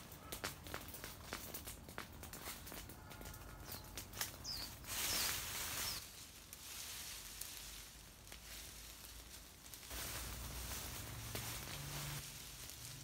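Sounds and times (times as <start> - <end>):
dry leaves rustling and crunching: 0.0 - 13.0.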